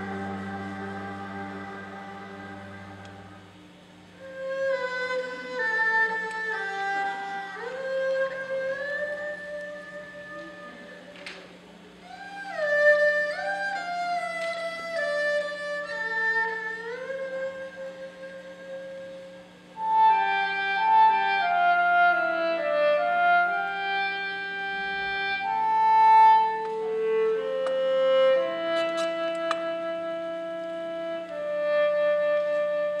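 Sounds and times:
traditional orchestra playing: 0.0 - 3.7
bowed string melody: 0.0 - 33.0.

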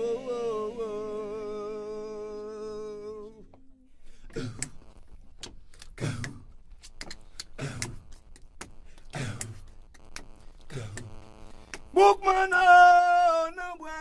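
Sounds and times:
sharp clicks: 4.3 - 12.0.

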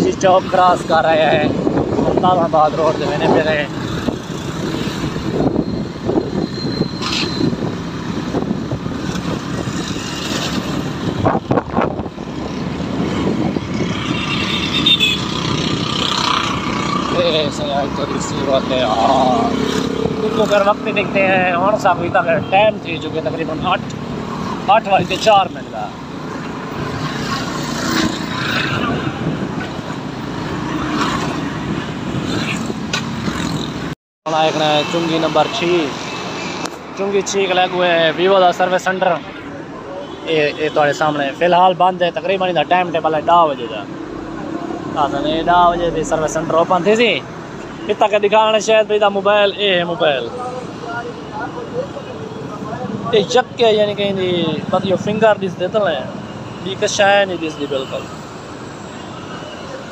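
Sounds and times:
motorcycles passing: 0.0 - 59.9
road traffic noise: 0.0 - 59.9
wind noise: 0.8 - 17.4, 27.8 - 30.6.

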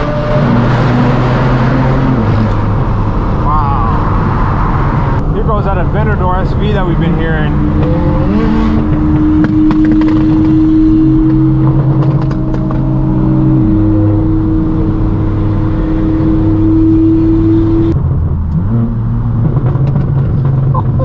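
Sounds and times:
car exhaust droning: 0.0 - 21.0
exhaust pops: 5.1 - 13.1, 17.9 - 21.0.

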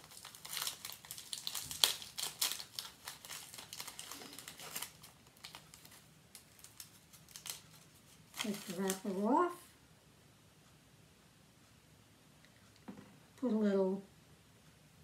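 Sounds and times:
plastic wrapper crackling: 0.0 - 9.3.

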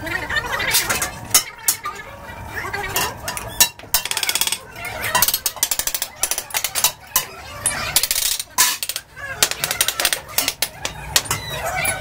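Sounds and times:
hand tools knocking and rattling: 8.0 - 11.4.

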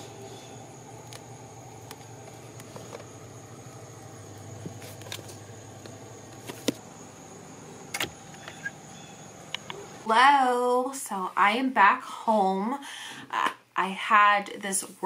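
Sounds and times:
steady low hum: 0.0 - 10.1.

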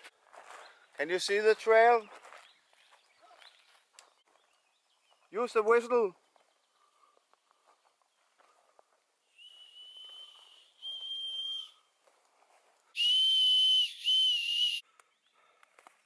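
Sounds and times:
high-pitched whistle blasts: 9.4 - 11.9, 13.0 - 14.8.

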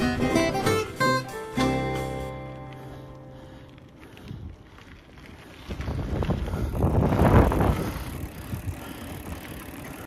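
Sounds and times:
wind buffeting microphone: 4.0 - 10.0.

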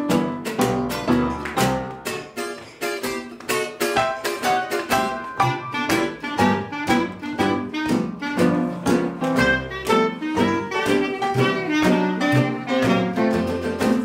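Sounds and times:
strummed acoustic guitar: 0.0 - 14.0
clarinet melody: 4.6 - 14.0.

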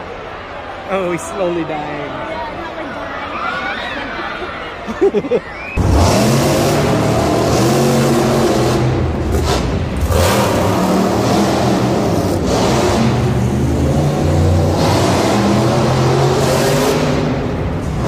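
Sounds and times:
truck engines revving loudly: 5.6 - 18.0.

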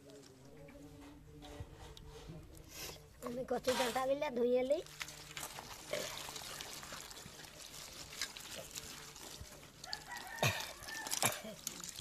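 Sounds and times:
water sloshing in metal bowl: 3.6 - 12.0
rooster crowing: 9.8 - 11.3.

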